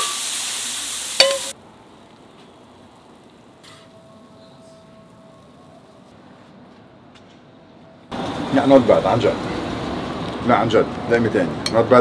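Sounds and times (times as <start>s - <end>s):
beans sizzling on a hot pan: 0.0s - 5.5s
metal spatula ringing against pan: 1.2s - 1.5s.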